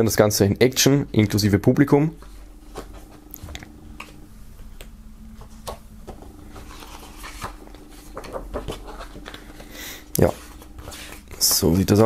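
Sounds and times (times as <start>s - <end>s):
book pages turning: 2.2s - 4.2s, 4.8s - 12.0s.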